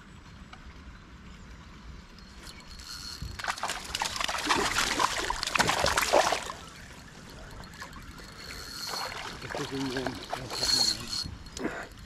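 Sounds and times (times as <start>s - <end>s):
water splashing and sloshing: 2.4s - 11.8s.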